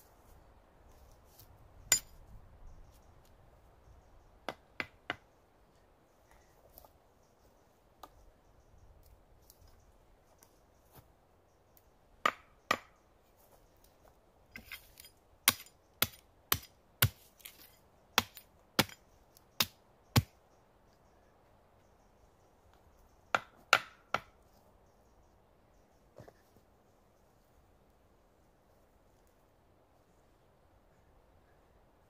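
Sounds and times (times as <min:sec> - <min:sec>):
hatchet chopping wood: 0:04.4 - 0:05.3, 0:12.2 - 0:13.0, 0:14.6 - 0:19.0, 0:19.6 - 0:20.3, 0:23.3 - 0:24.4.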